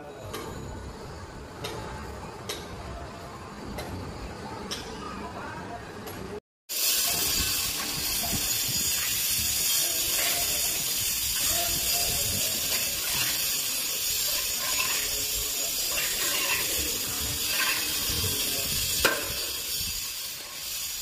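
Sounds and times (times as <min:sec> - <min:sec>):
plaster spray gun hissing: 0:06.7 - 0:21.0.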